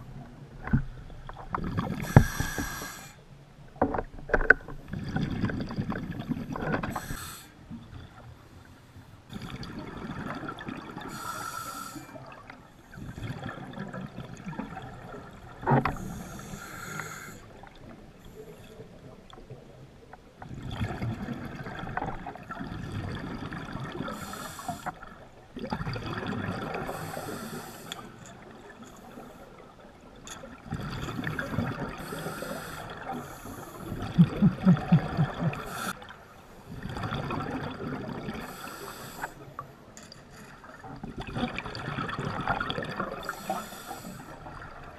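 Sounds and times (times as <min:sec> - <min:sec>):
diver breathing through regulator: 0:01.9 - 0:03.2, 0:06.9 - 0:07.6, 0:11.1 - 0:12.2, 0:15.9 - 0:17.5, 0:24.0 - 0:25.0, 0:26.8 - 0:28.2, 0:30.9 - 0:36.1, 0:38.4 - 0:39.4, 0:43.2 - 0:44.4
bubbly exhalations: 0:33.8 - 0:36.0.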